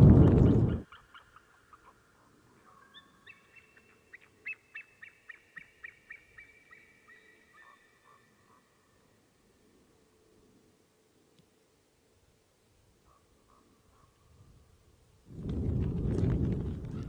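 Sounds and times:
eagle calling: 0.1s - 8.8s.

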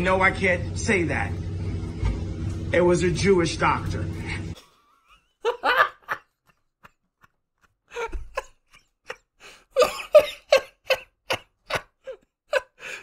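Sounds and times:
person laughing hard: 4.6s - 13.0s.

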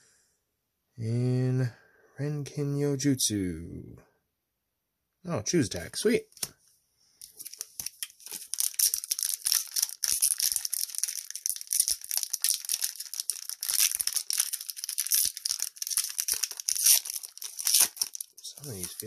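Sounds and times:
foil wrapper crinkling and tearing: 7.2s - 19.0s.

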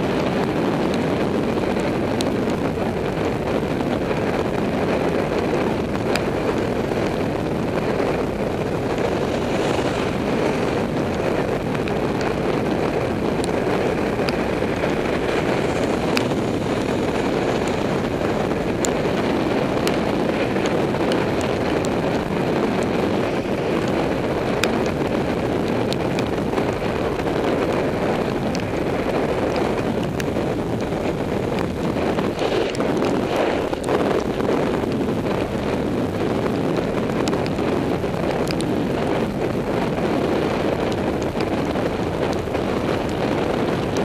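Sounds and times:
wind rushing over microphone: 0.0s - 44.0s
small ticks: 38.4s - 38.7s.

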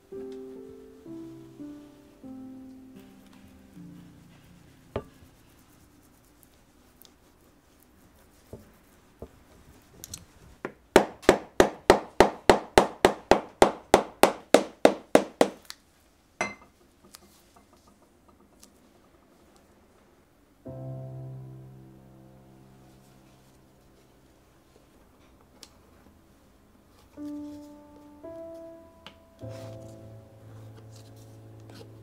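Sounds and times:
hammer striking leather: 10.6s - 15.7s.

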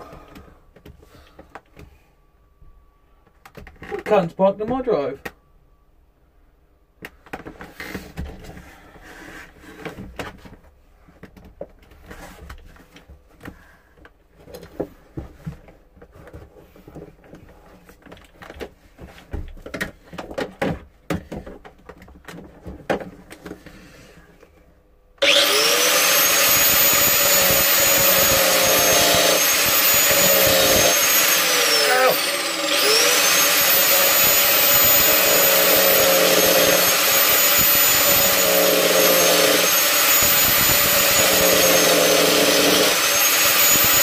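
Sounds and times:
knocks and rattles of handling: 9.8s - 23.8s
angle grinder whining: 25.2s - 44.0s.

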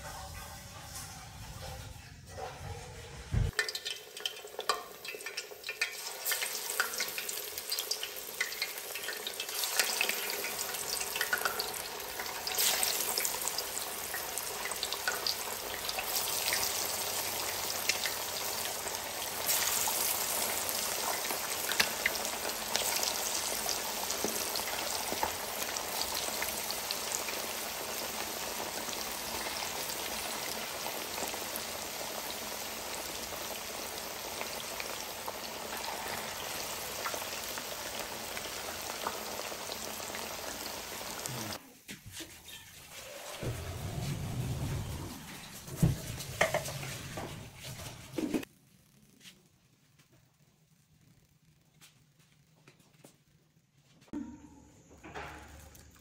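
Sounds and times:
fish deep-frying in oil: 3.5s - 41.6s.

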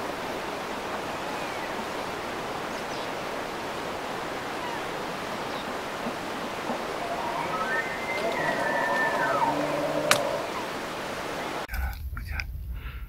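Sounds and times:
steady rushing noise: 0.0s - 11.7s
high sliding calls: 1.4s - 11.7s.

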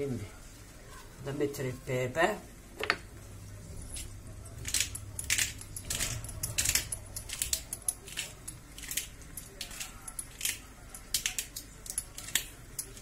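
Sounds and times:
pepper mill grinding: 3.7s - 13.0s.

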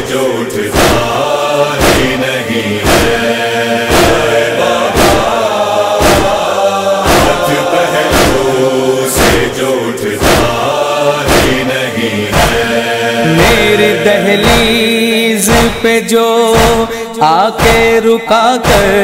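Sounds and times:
chorus of voices chanting: 0.0s - 19.0s.

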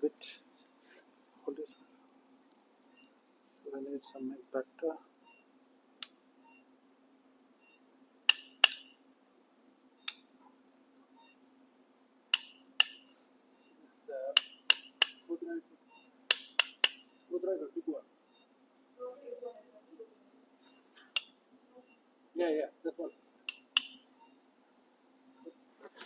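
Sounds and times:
mallet tapping steel: 12.4s - 13.0s, 14.4s - 15.2s, 16.3s - 17.1s.

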